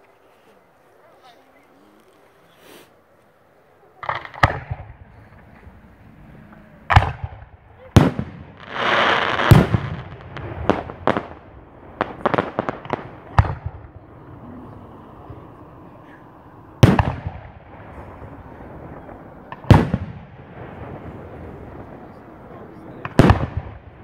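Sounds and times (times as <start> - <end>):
sharp firework cracks: 4.0 - 5.7, 6.9 - 14.2, 16.2 - 24.0
firework shells booming: 4.0 - 24.0.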